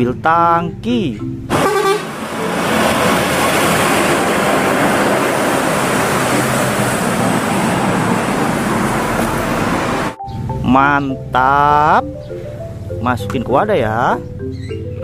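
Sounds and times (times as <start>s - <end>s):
truck driving past: 1.5s - 10.6s.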